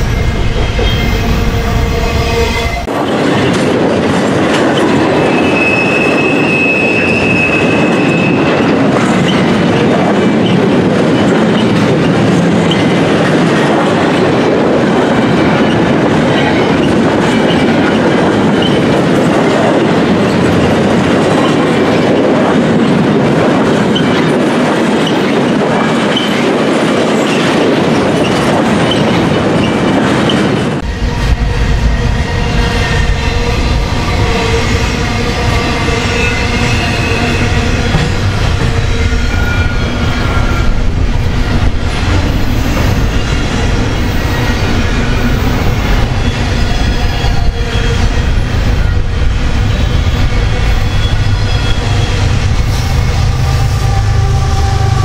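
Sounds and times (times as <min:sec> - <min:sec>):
freight train wheels clattering on rails: 0:00.0 - 0:02.2, 0:02.8 - 0:55.0
high wheel squeal: 0:05.0 - 0:09.4, 0:31.9 - 0:49.0, 0:49.6 - 0:55.0.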